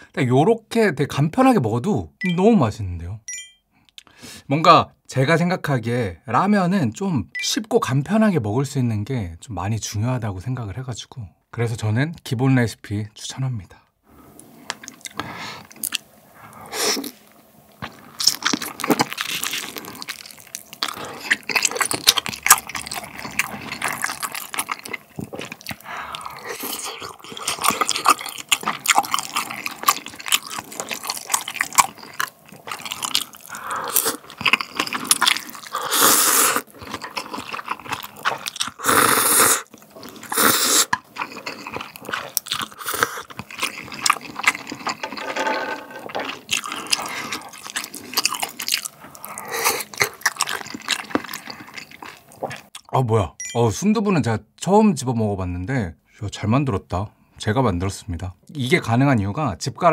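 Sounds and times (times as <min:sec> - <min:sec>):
person chewing food: 0:14.3 - 0:52.9
slurping noodles: 0:17.9 - 0:52.6.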